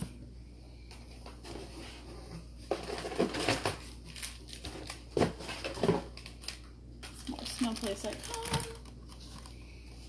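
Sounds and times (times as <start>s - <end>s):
packaging rustling: 2.7s - 9.6s.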